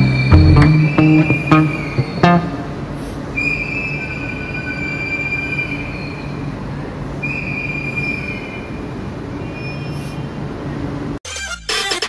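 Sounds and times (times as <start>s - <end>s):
high wheel squeal: 0.0s - 2.5s, 3.3s - 6.6s, 9.4s - 10.4s.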